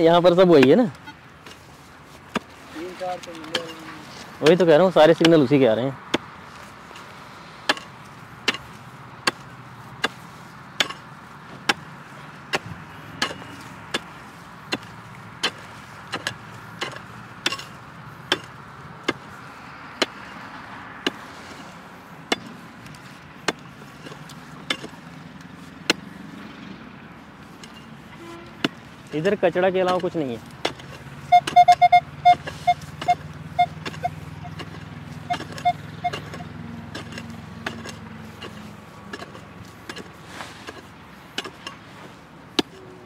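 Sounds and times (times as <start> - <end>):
pickaxe chopping hard ground: 1.4 - 2.6, 6.1 - 19.4, 22.3 - 25.0, 25.8 - 26.2, 29.8 - 31.6, 33.8 - 41.8, 42.5 - 42.8.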